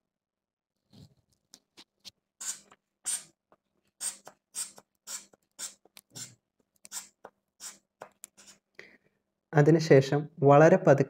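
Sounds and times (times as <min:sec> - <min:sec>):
inflation bulb hissing: 0:02.4 - 0:03.3.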